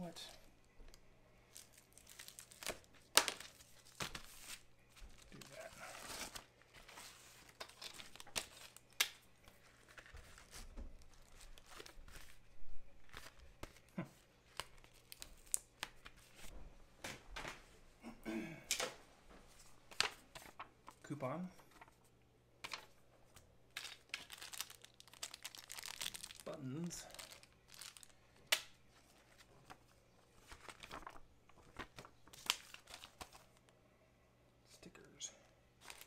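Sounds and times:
packaging crinkling and tearing: 0:00.9 - 0:12.4, 0:13.0 - 0:16.5, 0:23.7 - 0:33.6, 0:35.8 - 0:36.0.

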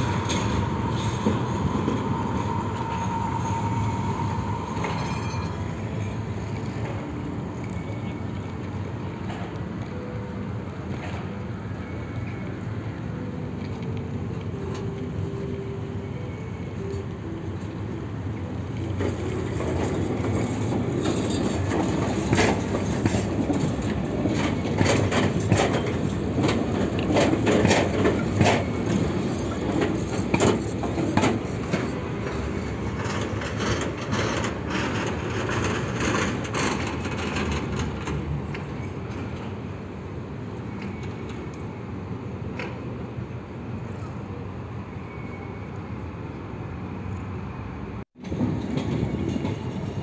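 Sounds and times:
tram wheels clacking over rail joints: 0:00.0 - 0:44.4, 0:48.2 - 0:50.0
tram running rumble: 0:00.0 - 0:50.0.

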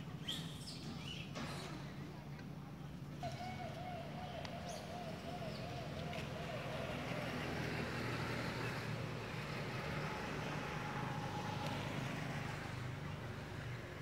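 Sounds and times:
vehicle passing on road: 0:03.5 - 0:14.0.

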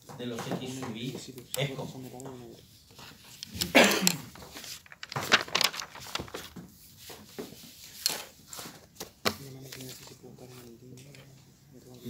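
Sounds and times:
papers being handled: 0:00.0 - 0:11.6.

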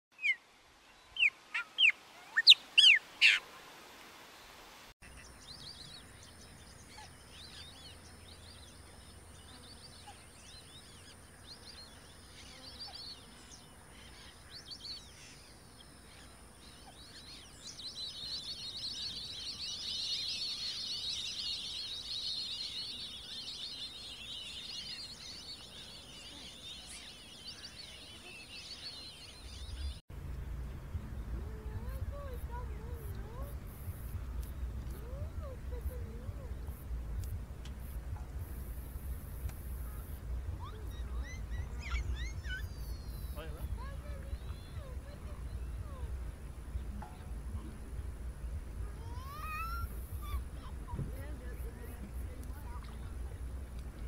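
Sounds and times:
chorus of high bird chirps: 0:01.1 - 0:03.4, 0:05.0 - 0:30.0, 0:31.5 - 0:47.8, 0:48.4 - 0:53.4
loud sharp bird calls: 0:39.8 - 0:45.9.

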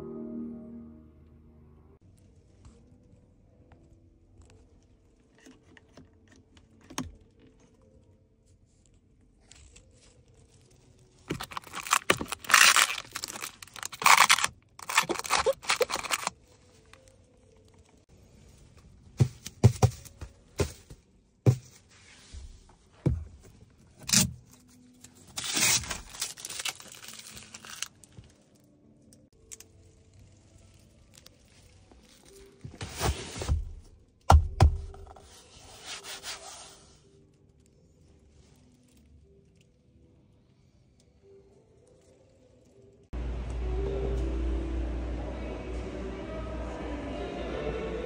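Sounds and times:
plastic film tearing and crinkling: 0:09.7 - 0:16.4, 0:25.1 - 0:28.2.

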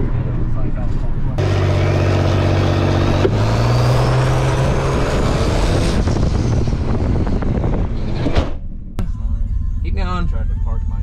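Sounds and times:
engine running hard: 0:00.9 - 0:08.3.

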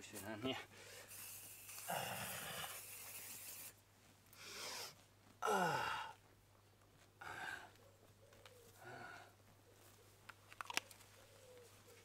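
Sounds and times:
aerosol spray hissing: 0:01.0 - 0:03.8
man exhaling: 0:04.4 - 0:06.2
man groaning sigh: 0:05.4 - 0:06.2.

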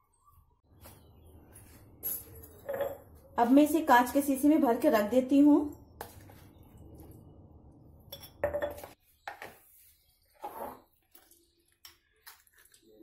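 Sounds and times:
metal spoon clinking on glass jar: 0:02.1 - 0:03.1.

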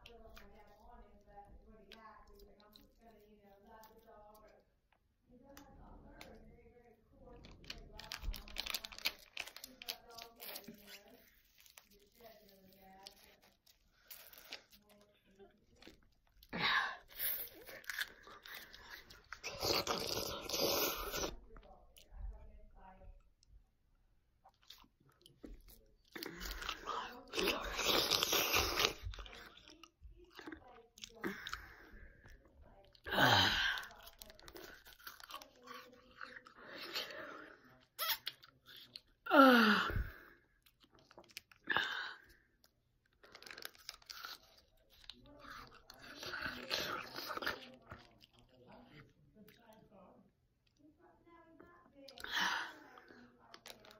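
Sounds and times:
mouth chewing close to microphone: 0:07.4 - 0:22.1, 0:24.4 - 0:39.2, 0:40.6 - 0:41.8, 0:42.6 - 0:49.8, 0:53.0 - 0:53.9.

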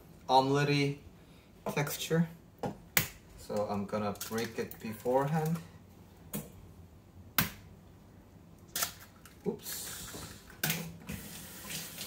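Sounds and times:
kitchen tap running: 0:09.7 - 0:12.0.

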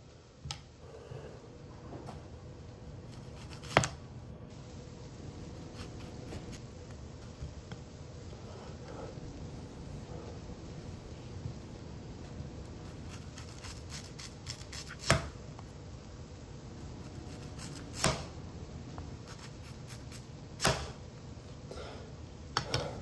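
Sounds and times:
knife slicing onion: 0:02.9 - 0:04.0, 0:05.4 - 0:06.6, 0:12.8 - 0:15.4, 0:16.8 - 0:18.4, 0:19.0 - 0:21.0.

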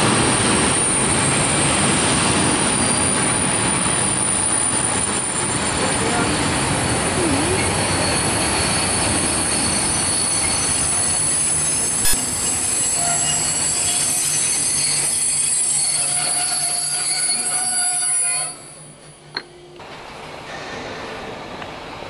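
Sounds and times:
train wheels rushing on rails: 0:00.0 - 0:18.0
high wheel squeal: 0:07.6 - 0:18.9.

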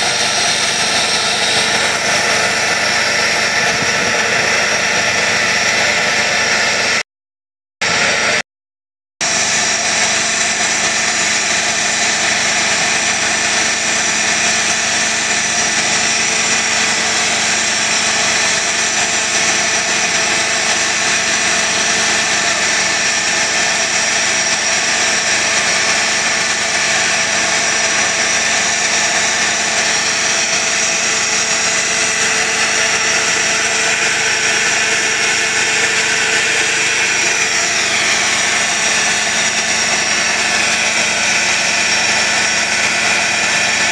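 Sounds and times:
machine drone with hiss: 0:00.0 - 0:07.0, 0:09.2 - 0:43.9.

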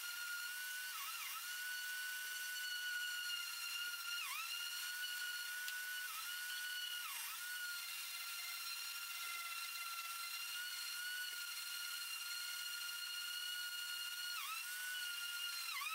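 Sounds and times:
orbital sander whining: 0:00.0 - 0:15.9.

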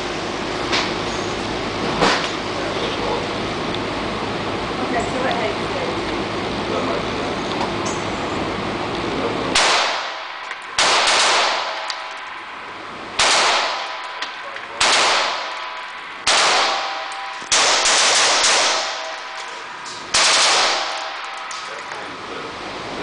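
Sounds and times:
rapid rifle shots echoing indoors: 0:09.6 - 0:11.9, 0:13.2 - 0:14.0, 0:14.8 - 0:15.7, 0:16.3 - 0:19.2, 0:20.1 - 0:21.2.

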